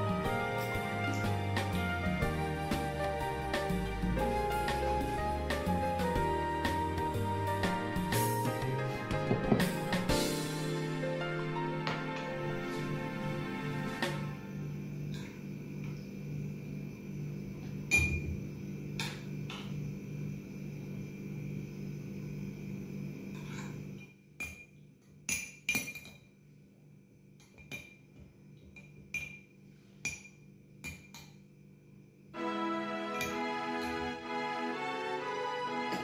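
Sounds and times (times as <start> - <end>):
soft background music: 0.0 - 14.9, 32.4 - 36.0
metal spoon clinking against glass: 25.3 - 26.3, 28.8 - 29.5.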